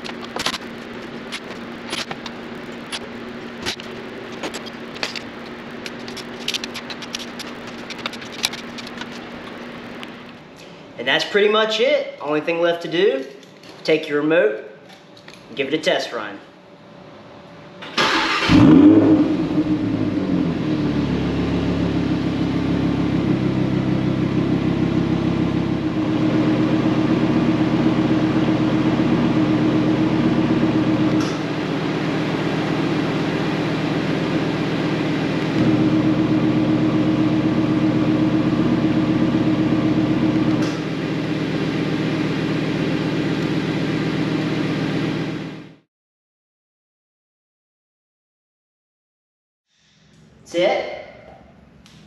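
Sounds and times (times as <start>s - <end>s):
car engine idling: 0.0s - 10.4s, 18.6s - 45.6s
car engine starting and revving: 17.8s - 45.8s.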